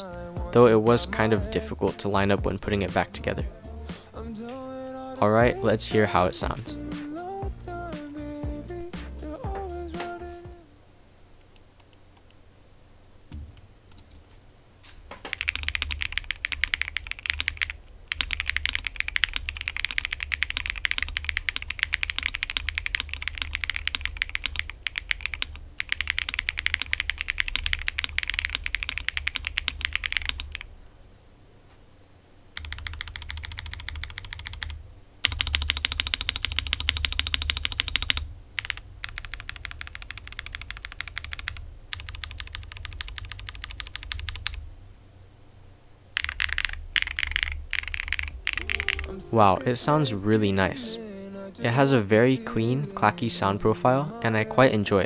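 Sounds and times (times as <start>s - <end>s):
mechanical keyboard typing: 15.3s - 30.7s, 32.6s - 44.6s, 46.2s - 49.2s.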